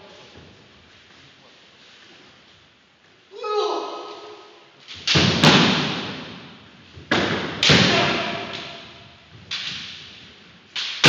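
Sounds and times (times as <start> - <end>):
bamboo swords cracking: 4.2 - 6.5, 7.1 - 11.0.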